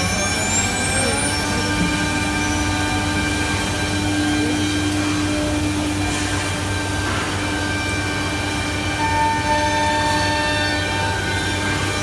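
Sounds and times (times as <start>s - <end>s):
machine spindle whine and hum: 0.0s - 12.0s.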